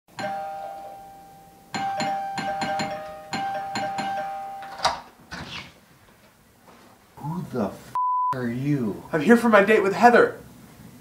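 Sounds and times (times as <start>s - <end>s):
doorbell chime ringing: 0.2s - 5.0s.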